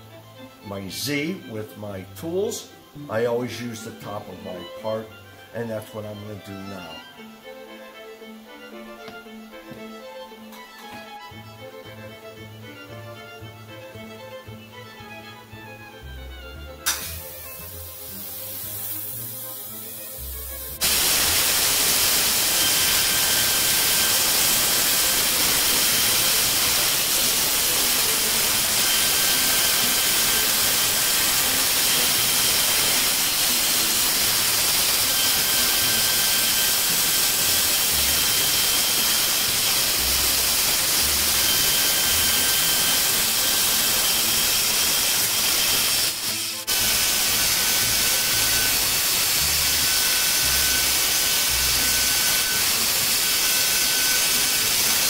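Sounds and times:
faint high whine: 0:16.6 - 0:55.0
cnc mill cutting aluminum: 0:16.9 - 0:55.0
coolant spray hissing: 0:16.9 - 0:55.0.

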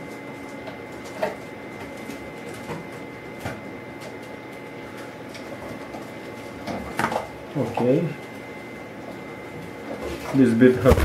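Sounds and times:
thin high whine: 0:10.8 - 0:11.0.

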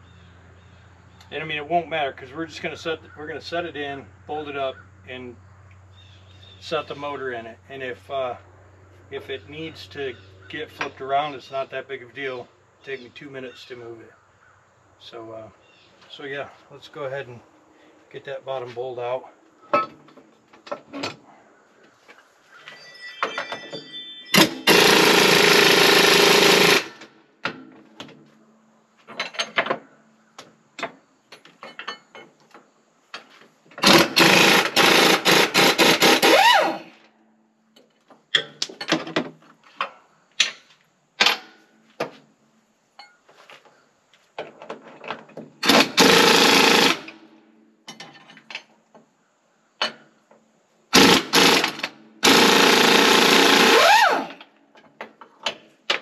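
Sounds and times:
metal tools clinking: 0:22.6 - 0:24.7, 0:29.1 - 0:29.7, 0:31.6 - 0:32.4, 0:43.0 - 0:43.4, 0:47.9 - 0:48.8
impact wrench running: 0:24.4 - 0:27.0, 0:33.8 - 0:36.8, 0:45.6 - 0:47.2, 0:51.0 - 0:54.4.

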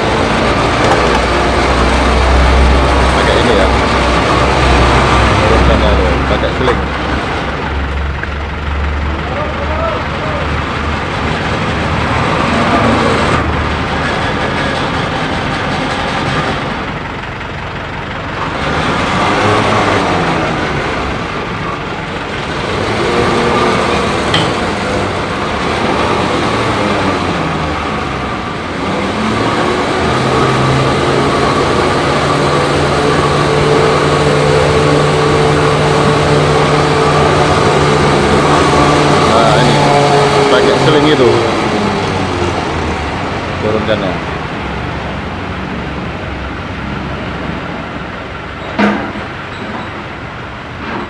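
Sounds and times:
tow truck engine running: 0:00.0 - 0:51.0.

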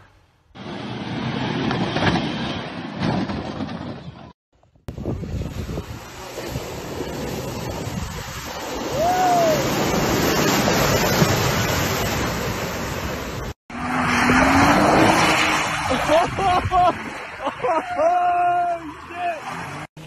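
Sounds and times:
truck splashing through mud: 0:05.2 - 0:19.9.

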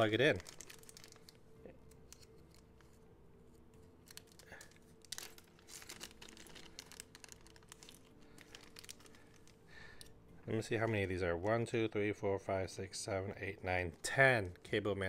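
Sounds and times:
plastic bag crinkling: 0:00.0 - 0:02.6, 0:04.0 - 0:10.1.

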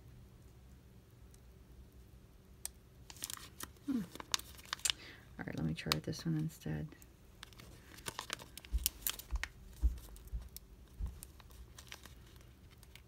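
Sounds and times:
soft bumps: 0:08.7 - 0:11.4.

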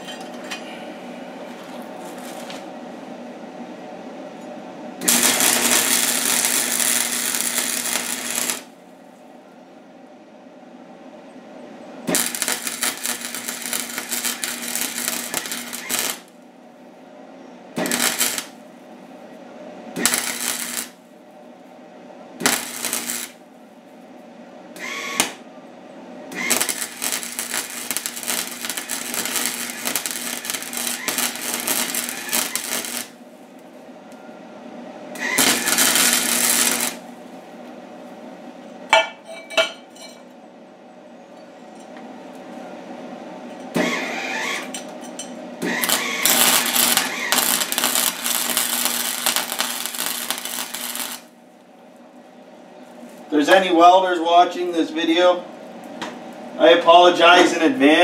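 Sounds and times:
welder low hum: 0:00.0 - 0:38.8, 0:45.5 - 0:55.5
welding arc crackling: 0:02.0 - 0:02.7, 0:05.0 - 0:08.8, 0:12.0 - 0:16.4, 0:17.8 - 0:18.6, 0:19.9 - 0:21.1, 0:22.4 - 0:23.4, 0:24.8 - 0:25.4, 0:26.3 - 0:33.2, 0:35.2 - 0:37.1, 0:45.6 - 0:51.4.

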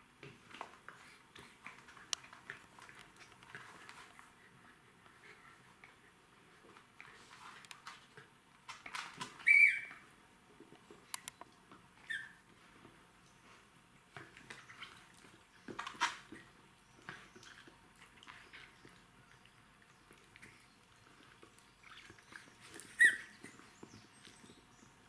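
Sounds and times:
puppies scuffling: 0:00.2 - 0:25.0
rubber toy squeak: 0:09.4 - 0:09.9, 0:12.1 - 0:12.4, 0:23.0 - 0:23.3.

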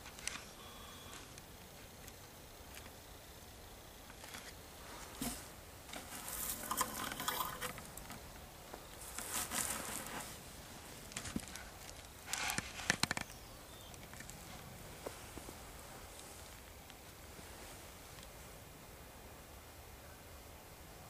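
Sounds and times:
rustling and crunching: 0:04.0 - 0:18.4.

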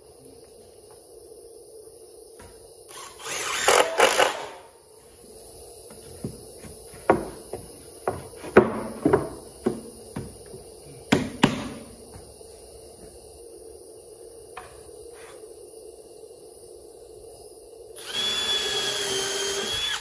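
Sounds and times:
wooden boards knocking: 0:07.0 - 0:11.8
cordless driver running screw: 0:18.0 - 0:20.0.

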